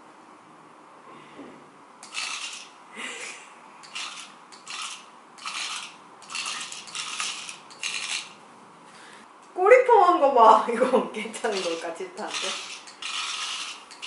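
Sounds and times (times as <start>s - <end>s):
toy motor and plastic clattering: 2.0s - 2.8s, 3.8s - 8.4s, 11.4s - 14.0s.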